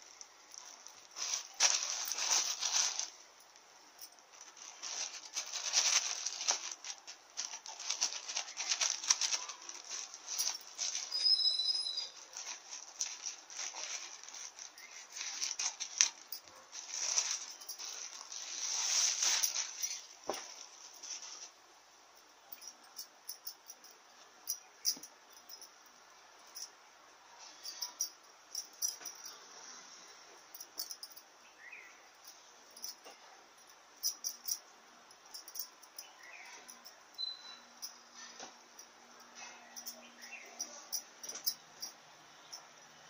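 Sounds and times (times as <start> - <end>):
plastic mailer bag crinkling: 0.0 - 3.2, 4.0 - 21.5.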